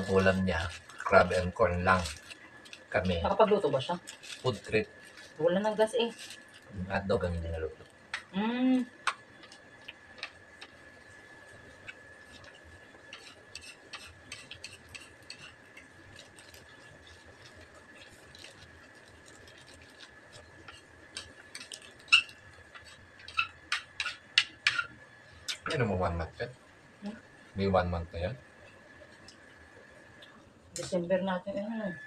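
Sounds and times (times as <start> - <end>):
paper wrapper rustling: 0.0 - 6.8, 14.3 - 23.0.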